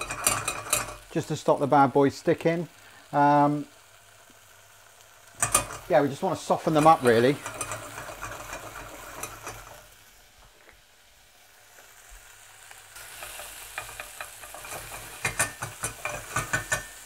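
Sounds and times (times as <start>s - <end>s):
wooden spoon scraping a pan: 0.0s - 1.1s, 6.6s - 9.9s, 13.0s - 17.0s
berries sizzling in oil: 0.0s - 17.0s.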